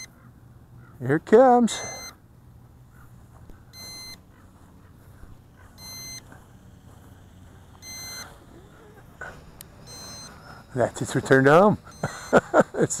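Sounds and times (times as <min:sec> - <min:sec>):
short high electronic beeps: 0:03.8 - 0:04.2, 0:05.8 - 0:06.3, 0:07.8 - 0:08.3, 0:09.8 - 0:10.6.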